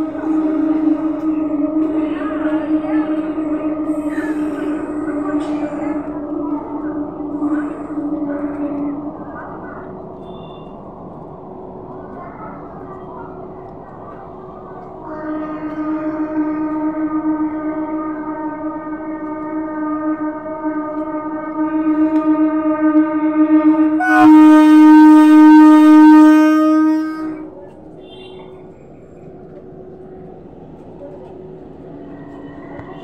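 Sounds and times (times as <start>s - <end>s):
train horn blowing: 0.0s - 10.9s, 15.0s - 28.6s.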